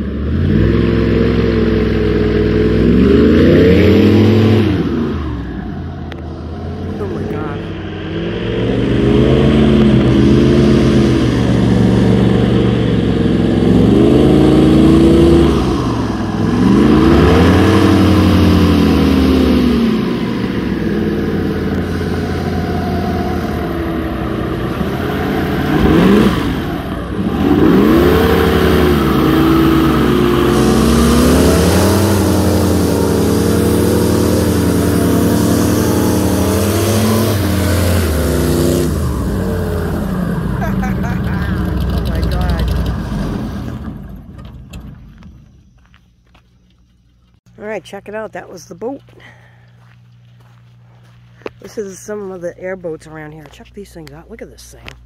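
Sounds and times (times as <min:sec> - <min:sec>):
airboat engine and propeller revving: 0:00.0 - 0:45.4.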